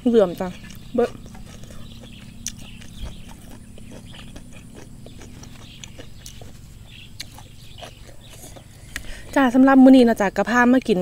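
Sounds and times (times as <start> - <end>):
low steady hum: 0.0 - 11.0
chewing: 0.3 - 9.4.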